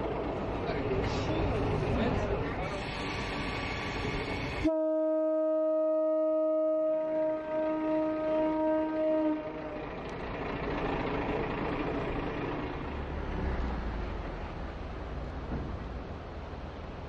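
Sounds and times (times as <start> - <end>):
train rumbling along track: 0.0 - 4.7, 7.0 - 17.0
train horn: 4.6 - 9.9.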